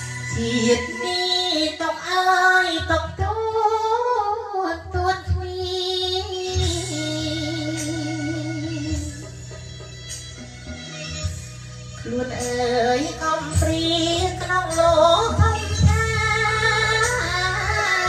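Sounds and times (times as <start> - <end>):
person singing into microphone: 0.0 - 18.0
instrumental accompaniment: 6.1 - 18.0.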